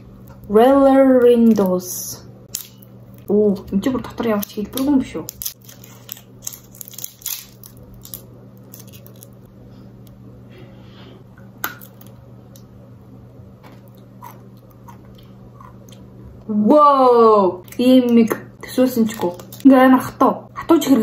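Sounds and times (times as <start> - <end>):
low steady hum: 0.0 - 21.0
plastic wrapper crinkling: 4.1 - 9.5, 19.1 - 19.7.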